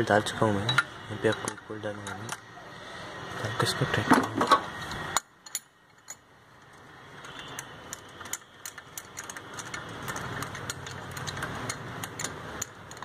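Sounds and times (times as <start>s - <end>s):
ratchet wrench clicking: 5.2s - 13.0s.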